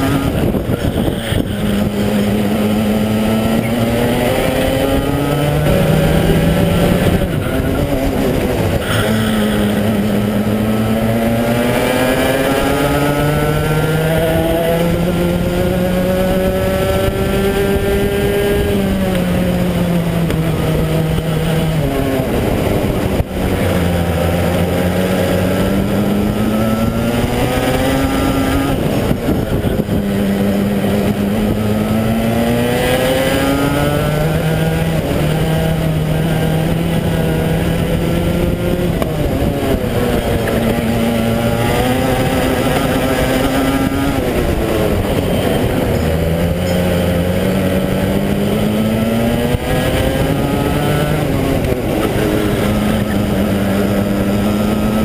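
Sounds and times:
racing kart engine revving: 0:00.0 - 0:55.0.

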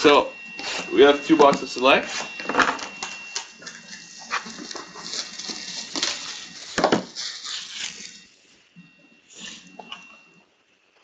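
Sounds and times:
plastic wrap crinkling: 0:02.8 - 0:08.4
cardboard boxes knocking: 0:06.8 - 0:07.1.

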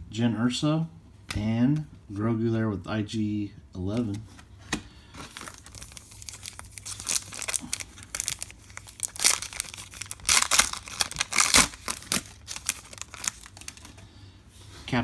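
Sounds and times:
foil wrapper crinkling and tearing: 0:05.3 - 0:14.0.

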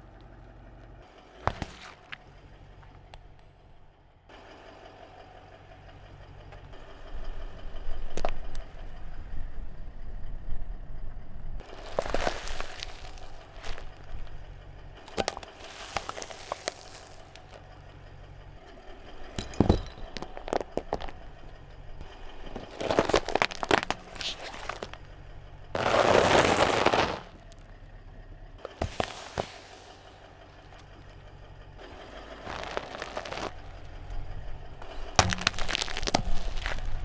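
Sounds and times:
tyre crushing brittle objects: 0:01.4 - 0:02.2, 0:11.6 - 0:14.3, 0:15.0 - 0:17.6, 0:19.4 - 0:21.2, 0:22.4 - 0:25.0, 0:25.8 - 0:27.6, 0:28.6 - 0:30.1, 0:32.4 - 0:33.8, 0:34.8 - 0:37.0.

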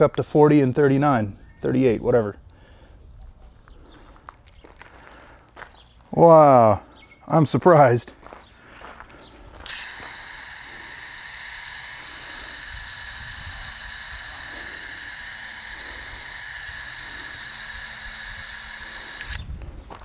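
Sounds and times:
hose nozzle spraying water: 0:09.6 - 0:19.5.

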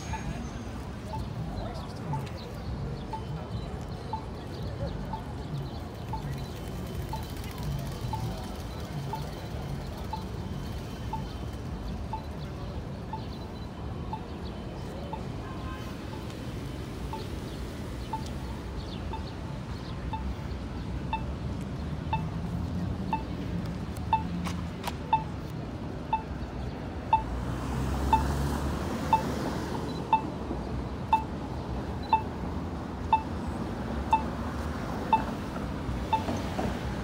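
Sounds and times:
street noise: 0:00.0 - 0:37.0.

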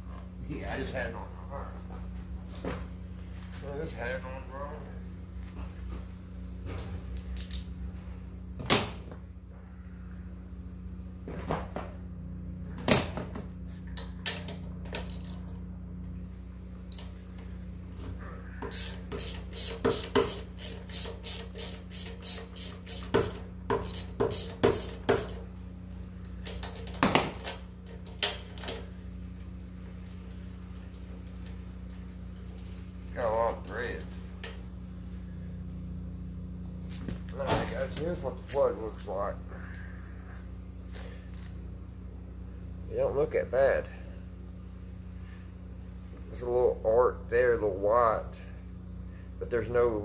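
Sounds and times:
steady low hum: 0:00.0 - 0:50.0
socket wrench ratcheting: 0:18.7 - 0:25.4.

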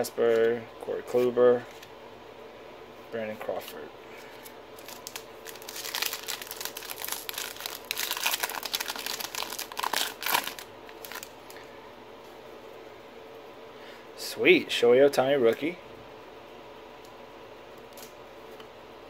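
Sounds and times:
foil wrapper crinkling: 0:04.4 - 0:11.6.

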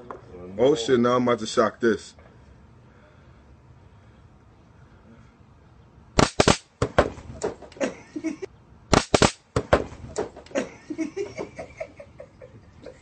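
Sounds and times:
stun gun crackling: 0:06.2 - 0:07.8, 0:08.9 - 0:10.6.

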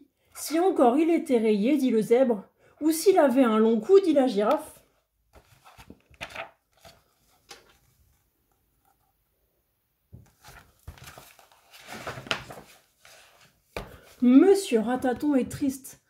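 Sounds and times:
pages and cover rustling: 0:05.3 - 0:09.1, 0:10.1 - 0:14.5
soft taps on book: 0:13.7 - 0:14.1
book knocks: 0:13.8 - 0:14.1.

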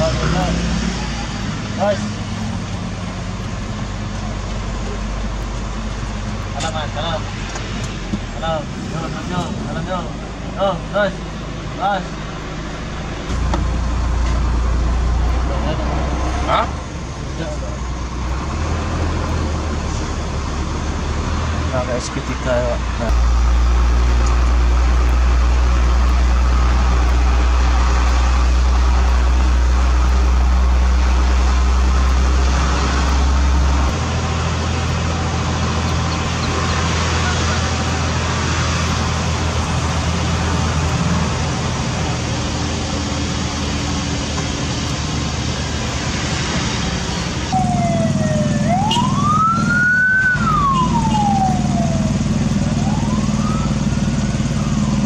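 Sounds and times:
diesel engines rumbling: 0:00.0 - 0:55.0
siren wailing: 0:47.4 - 0:55.0.

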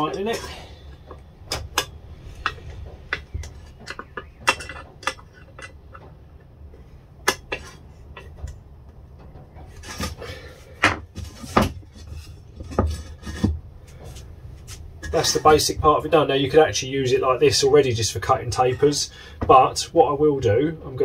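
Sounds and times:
clicks and knocks of wood and metal: 0:00.0 - 0:16.0.

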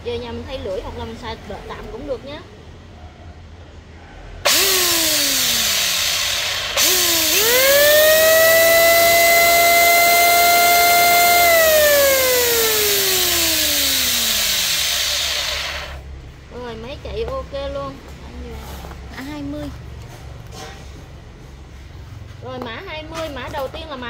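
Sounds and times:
electric hand planer whine: 0:04.5 - 0:16.0.

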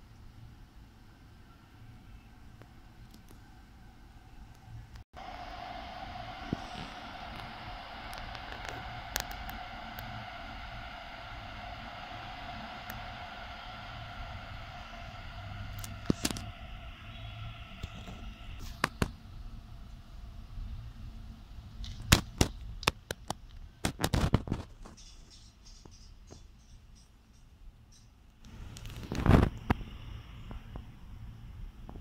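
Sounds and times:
electric train whine: 0:00.0 - 0:22.1, 0:24.5 - 0:32.0
sharp irregular clicks and knocks: 0:21.8 - 0:29.8.

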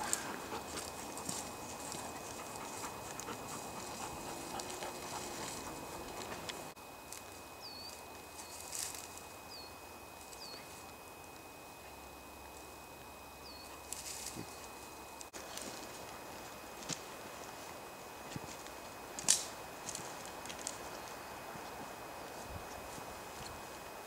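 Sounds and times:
dog rustling in brambles: 0:00.0 - 0:06.8
footsteps crunching through dry grass: 0:00.0 - 0:09.4, 0:12.5 - 0:24.0.

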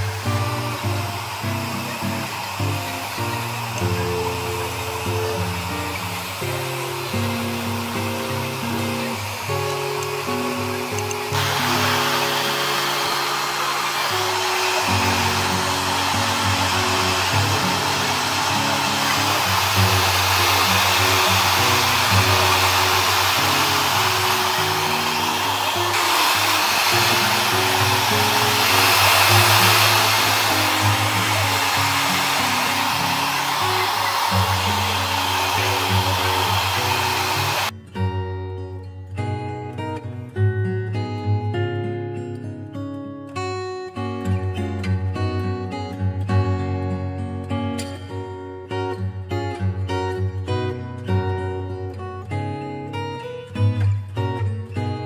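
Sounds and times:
electric blower rushing air: 0:00.0 - 0:37.7.

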